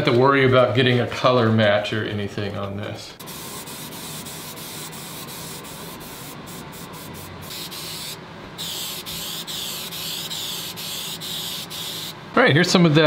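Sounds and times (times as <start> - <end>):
spray paint can hissing: 3.2 - 12.2.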